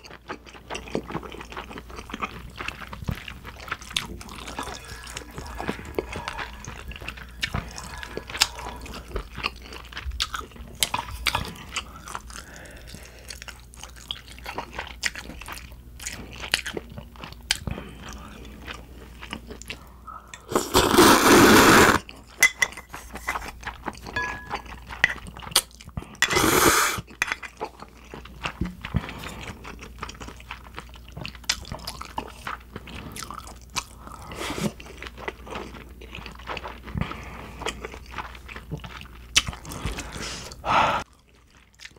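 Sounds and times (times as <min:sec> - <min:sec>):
chewing with wet mouth clicks: 0:00.0 - 0:20.5, 0:23.5 - 0:26.2, 0:27.1 - 0:34.1, 0:34.8 - 0:40.1, 0:41.1 - 0:41.9
loud slurps of noodles: 0:20.5 - 0:22.0, 0:26.3 - 0:27.0.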